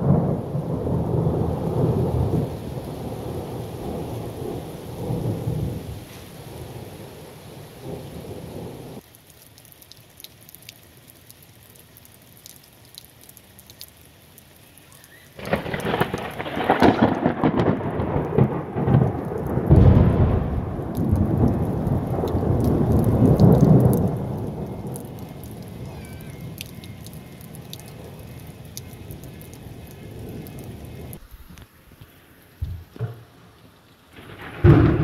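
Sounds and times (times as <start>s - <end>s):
loud thunder peal: 0.0s - 5.9s, 15.4s - 26.1s, 34.2s - 35.0s
thunder rumbling: 0.0s - 9.0s, 15.4s - 31.5s, 34.1s - 35.0s.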